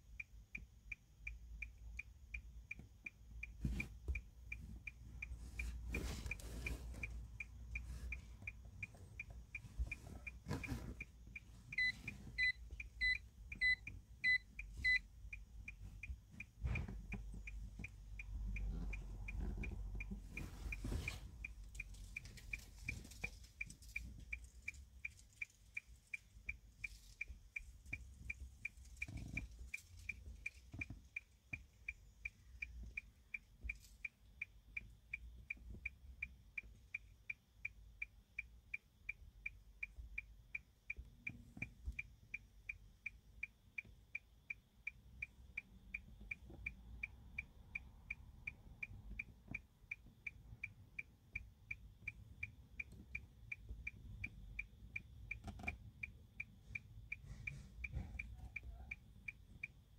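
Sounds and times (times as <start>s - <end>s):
electronic ticking: 0.0s - 59.9s
loud beeps: 11.7s - 15.0s.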